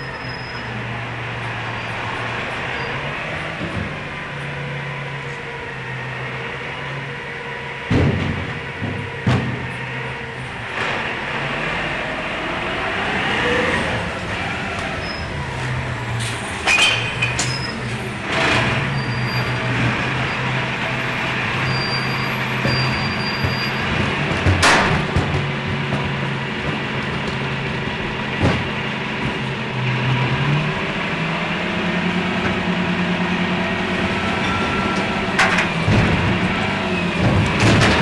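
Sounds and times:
truck engine hum: 0:00.0 - 0:38.0
bins clanking and banging: 0:07.8 - 0:11.7, 0:14.1 - 0:30.8, 0:34.0 - 0:38.0.

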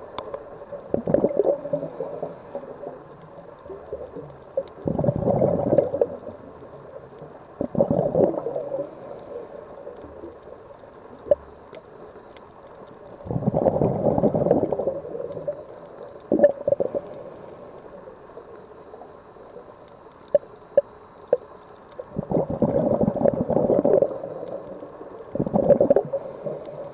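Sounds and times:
bubbles gurgling underwater: 0:00.7 - 0:02.0, 0:03.7 - 0:06.6, 0:07.6 - 0:08.9, 0:13.2 - 0:17.0, 0:22.1 - 0:24.7, 0:25.3 - 0:26.4.

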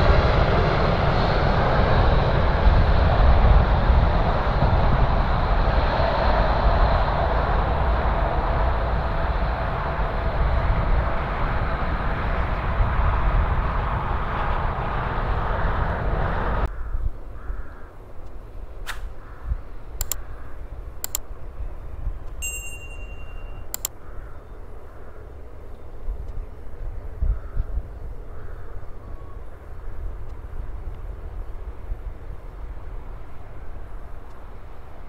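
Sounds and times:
jet engine noise: 0:00.0 - 0:35.0
sharp clicks: 0:20.0 - 0:20.2, 0:21.0 - 0:21.2, 0:23.7 - 0:24.0
chime-like ding: 0:22.4 - 0:23.7.

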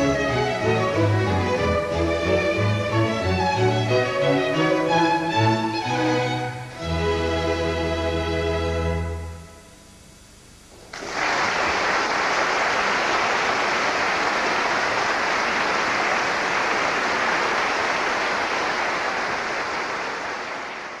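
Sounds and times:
audience applauding: 0:10.8 - 0:21.0.

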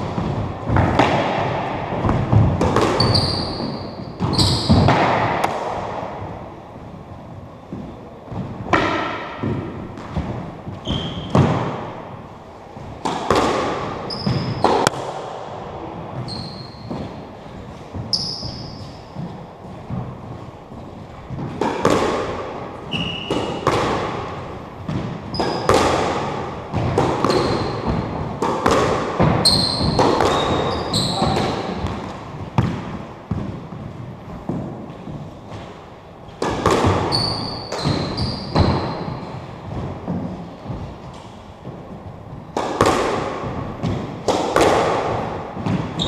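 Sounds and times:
squash ball hits echoing: 0:00.0 - 0:46.0
sneaker squeaks on wooden floor: 0:02.8 - 0:05.0, 0:10.6 - 0:11.6, 0:13.9 - 0:14.9, 0:16.1 - 0:21.5, 0:22.8 - 0:23.8, 0:24.9 - 0:25.8, 0:27.2 - 0:32.7, 0:36.8 - 0:39.5, 0:45.8 - 0:46.0.

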